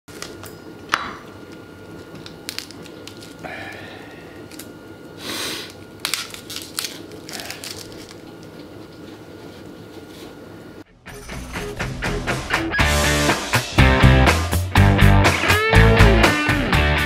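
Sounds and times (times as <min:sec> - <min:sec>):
onion skin crackling and rustling: 0:01.5 - 0:03.4, 0:04.3 - 0:09.1.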